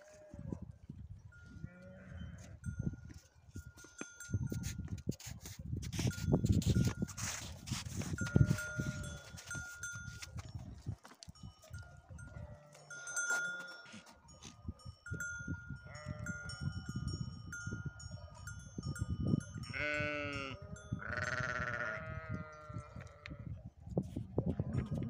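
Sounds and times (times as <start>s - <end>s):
sheep and goats bleating: 0.0s - 0.6s, 1.5s - 2.7s, 8.0s - 9.9s, 12.2s - 14.2s, 15.8s - 16.6s, 19.6s - 23.6s
livestock bells ringing: 1.3s - 4.9s, 6.0s - 10.6s, 11.3s - 22.8s.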